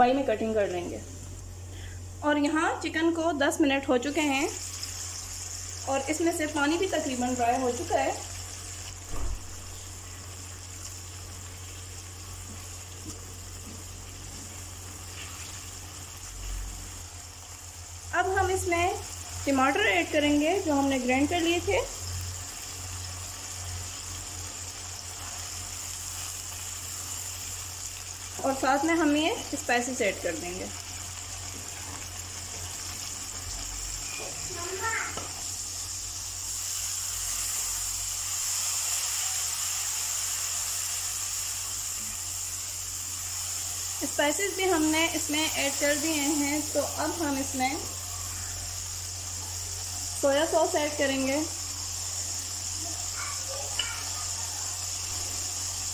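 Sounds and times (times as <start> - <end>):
chicken sizzling in a wok: 0.0 - 55.9.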